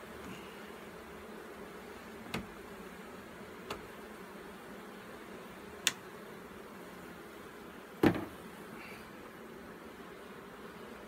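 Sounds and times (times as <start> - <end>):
bees buzzing: 0.0 - 11.0
wooden hive frames clicking: 2.1 - 4.0, 5.7 - 6.1.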